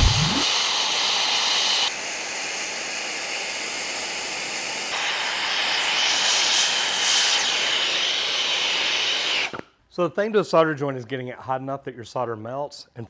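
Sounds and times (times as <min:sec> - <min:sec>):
brazing torch flame hissing: 0:00.0 - 0:09.6.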